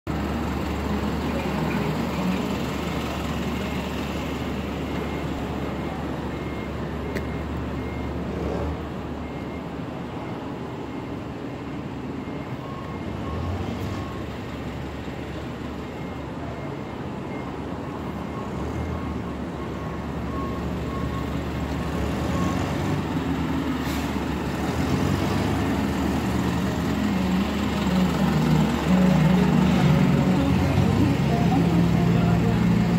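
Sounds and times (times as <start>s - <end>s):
truck engine idling: 0.1s - 8.3s, 19.1s - 32.9s
faint repeated beeping: 1.4s - 8.5s.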